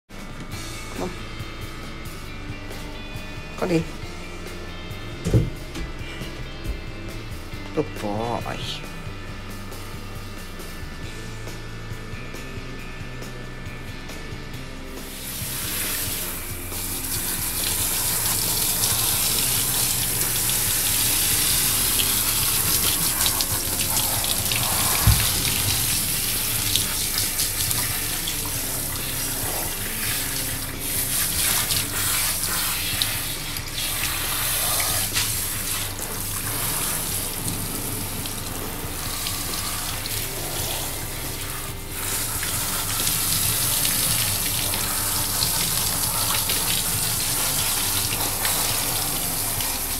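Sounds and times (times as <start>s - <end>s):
short thump: 5.2s - 6.0s, 24.9s - 25.9s
shower water spraying: 14.6s - 49.9s.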